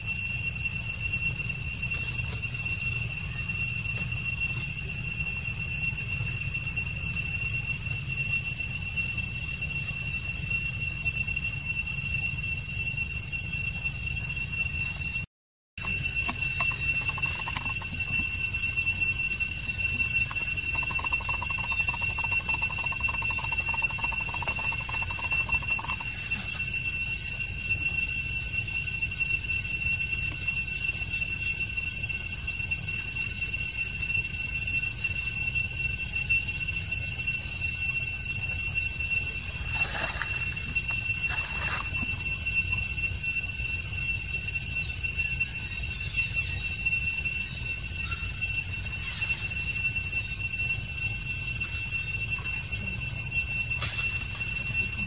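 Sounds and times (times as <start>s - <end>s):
cicadas droning: 0.0s - 55.0s
faint insect buzz: 15.8s - 27.1s.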